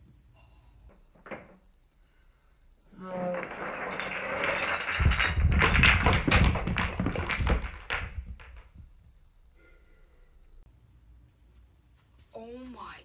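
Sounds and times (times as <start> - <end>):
toy blocks clacking and thudding: 0.8 - 1.9, 2.5 - 9.6
toy blocks rattling out of bucket: 2.9 - 9.0.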